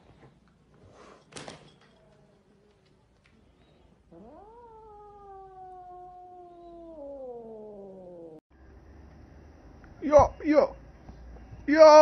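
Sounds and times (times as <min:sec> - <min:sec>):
cat yowling: 0:04.1 - 0:08.4.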